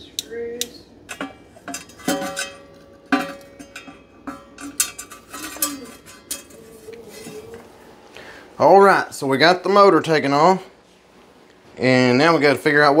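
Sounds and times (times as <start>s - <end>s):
metal tools clinking: 1.1s - 7.6s.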